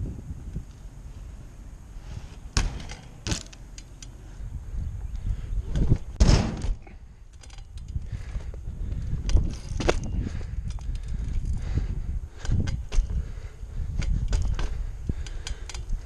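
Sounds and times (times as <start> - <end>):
bike rolling on concrete: 0.0 - 6.2, 6.8 - 16.0
bike clanks and thuds: 2.5 - 4.0, 5.7 - 11.6, 12.4 - 13.3, 13.9 - 15.9.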